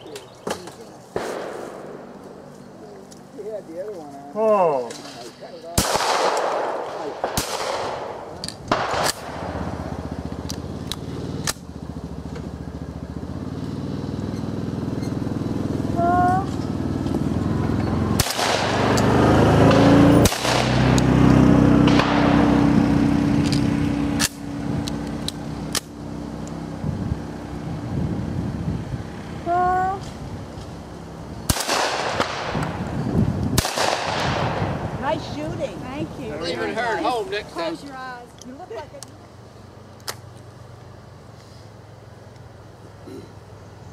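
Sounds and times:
shotgun shots with echo: 1.2 - 2.0, 5.7 - 9.6, 18.2 - 21.0, 21.8 - 22.5, 31.5 - 32.8, 33.6 - 34.8
steady low hum: 5.2 - 43.9.

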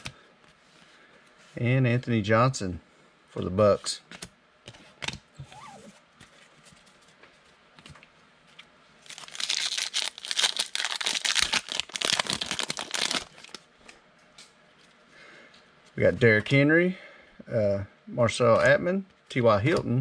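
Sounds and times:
foil wrapper crinkling: 9.0 - 13.6.

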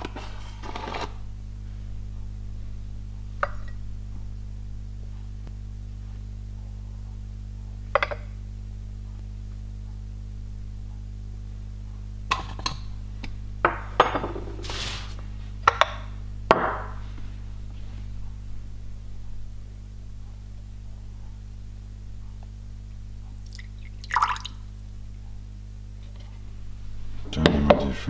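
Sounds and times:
glass bowls clinking: 23.5 - 24.6
water pouring into glass bowl: 23.5 - 24.7.

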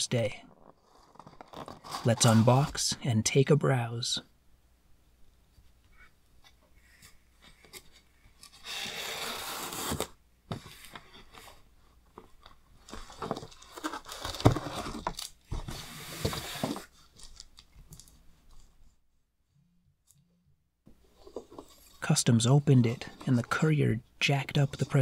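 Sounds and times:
cardboard scraping: 0.5 - 2.8, 7.8 - 11.7, 12.3 - 17.4.

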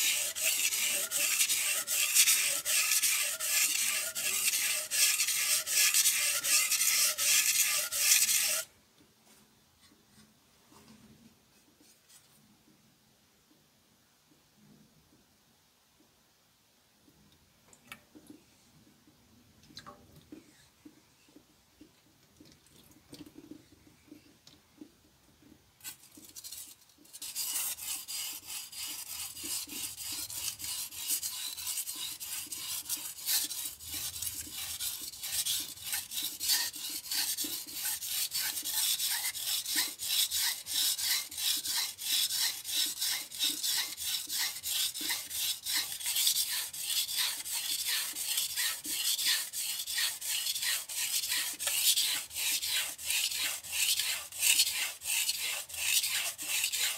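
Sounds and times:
knife scraping on whetstone: 0.0 - 8.7, 25.8 - 56.9.

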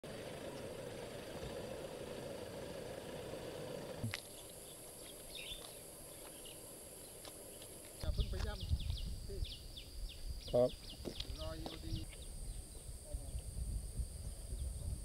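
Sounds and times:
faint bird chirps: 4.3 - 7.7
steady low rumble: 5.3 - 15.0.

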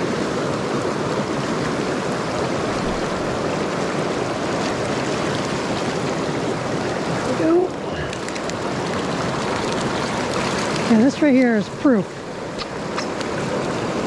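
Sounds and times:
river water rushing: 0.0 - 14.0.

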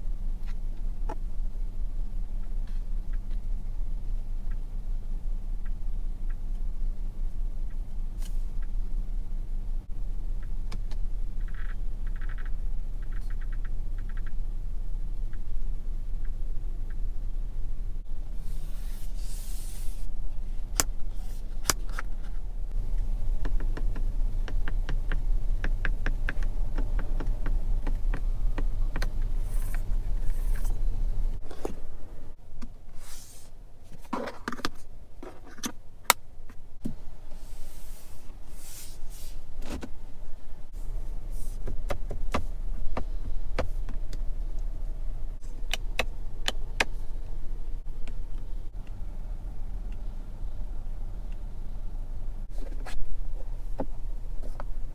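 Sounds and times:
steady low hum: 0.0 - 54.9
clicks and taps on car trim: 23.4 - 29.3.

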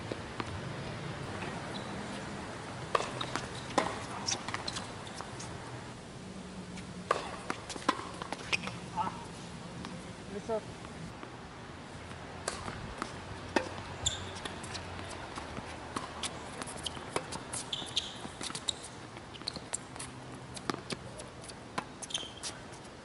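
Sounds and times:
tennis ball bouncing: 0.1 - 5.5, 7.0 - 10.1, 12.4 - 21.1
racket striking tennis ball: 1.3 - 5.5, 7.0 - 10.0, 12.4 - 18.8
shoe squeaks: 1.4 - 2.3, 3.0 - 5.6, 8.4 - 9.2, 13.9 - 15.2, 16.1 - 22.8.

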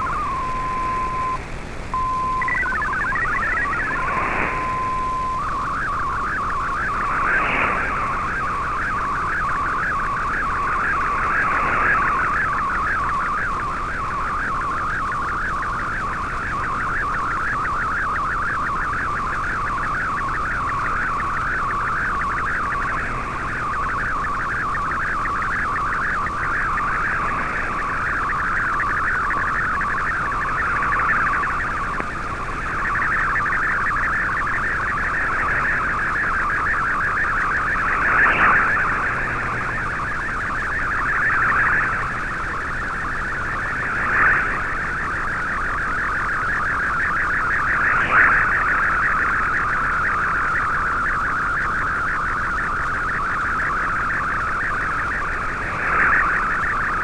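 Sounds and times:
warbling radio signal tones: 0.0 - 57.0.

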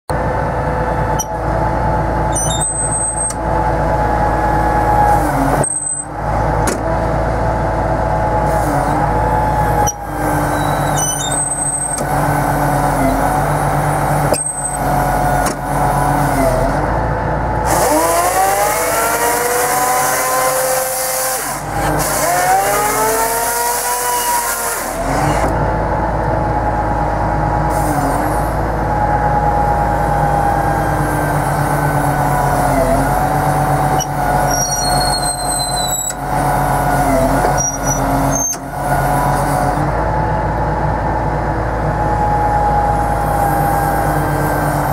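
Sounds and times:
tractor engine hum: 0.1 - 44.9
engine revving: 0.4 - 44.9.

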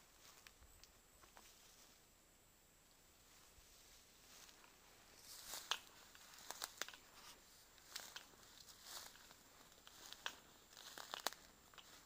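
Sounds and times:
footsteps crunching dry leaves: 3.7 - 12.0.

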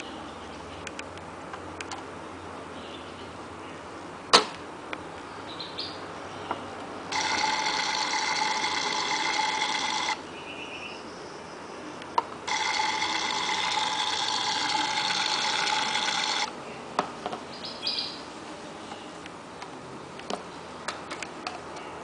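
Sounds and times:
toy cooking sound effect: 12.5 - 16.5.

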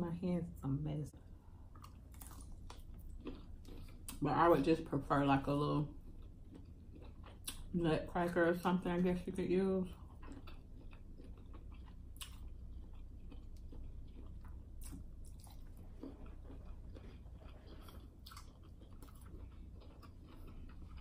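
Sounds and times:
wet chewing sounds: 1.6 - 4.3, 5.4 - 7.8, 9.9 - 21.0.

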